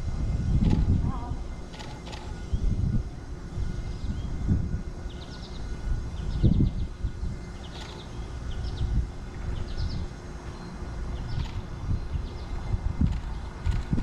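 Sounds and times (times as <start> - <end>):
wind buffeting microphone: 0.0 - 14.0
small birds chirping: 3.5 - 14.0.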